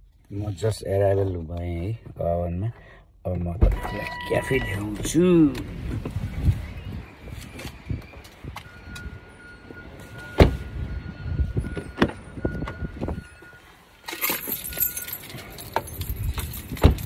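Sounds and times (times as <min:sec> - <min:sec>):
keys jangling: 0:14.1 - 0:17.0.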